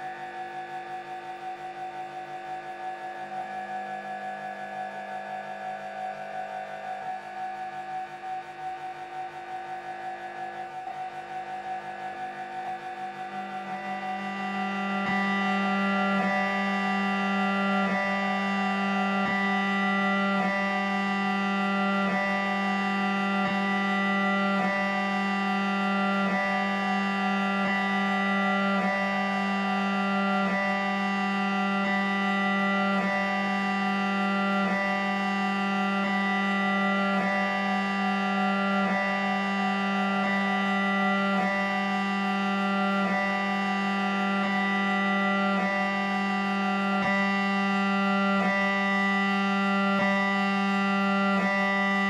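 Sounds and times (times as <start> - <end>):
droning held tones: 0.0 - 52.0.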